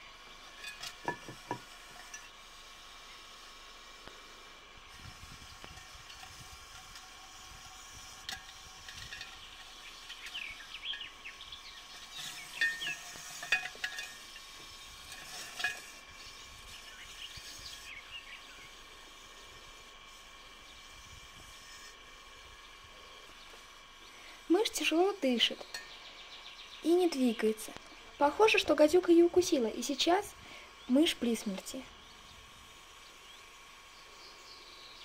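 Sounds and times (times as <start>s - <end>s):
steady hiss: 0.0s - 35.0s
rustling and scraping in glass jar: 0.6s - 2.4s, 5.0s - 7.2s, 8.1s - 11.2s, 11.8s - 17.9s.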